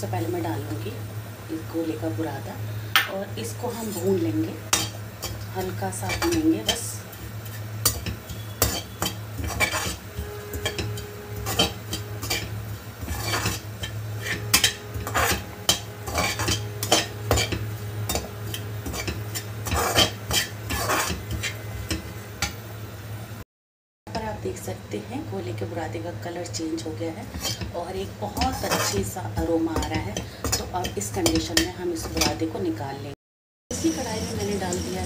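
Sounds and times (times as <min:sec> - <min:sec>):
steady low hum: 0:00.0 - 0:23.4, 0:24.1 - 0:33.0
metal spoon scraping a pan: 0:03.4 - 0:22.6, 0:27.2 - 0:32.5.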